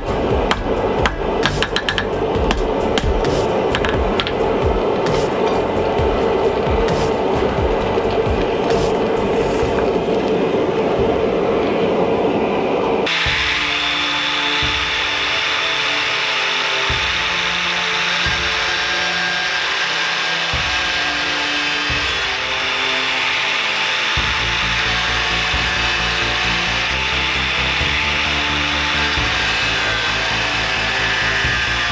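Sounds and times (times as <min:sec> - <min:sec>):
angle grinder cutting steel: 0:00.0 - 0:10.3, 0:13.0 - 0:31.9
forge fire rushing: 0:00.0 - 0:14.0
background music: 0:00.0 - 0:31.9.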